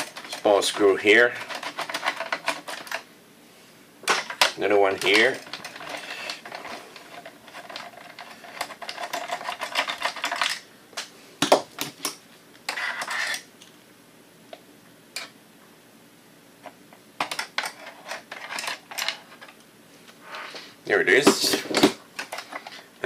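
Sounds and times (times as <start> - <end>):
brief scrape: 20.2 - 20.8.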